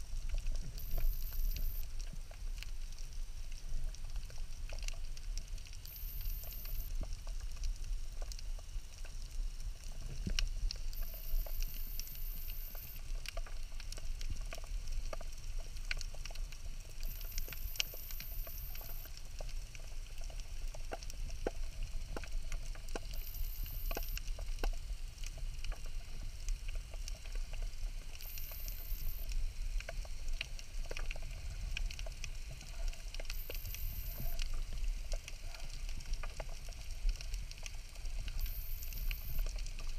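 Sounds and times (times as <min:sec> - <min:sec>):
low underwater rumble: 0:00.0 - 0:39.9
underwater crackle of small clicks: 0:00.0 - 0:39.9.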